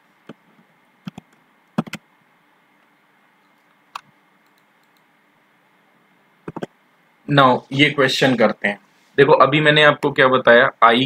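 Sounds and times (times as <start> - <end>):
faint background hiss: 0.0 - 11.0
computer mouse clicks: 1.0 - 2.0, 3.9 - 5.1, 6.4 - 6.7.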